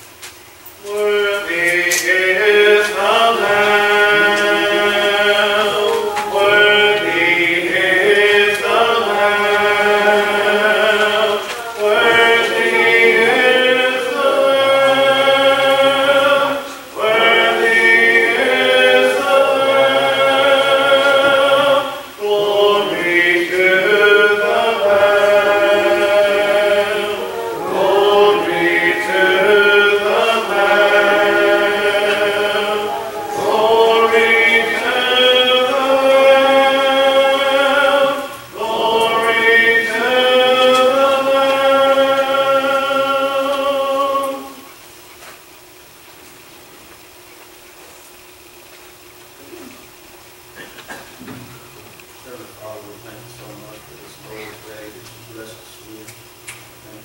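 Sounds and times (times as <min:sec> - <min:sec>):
congregation singing a hymn: 0:00.8 - 0:44.8.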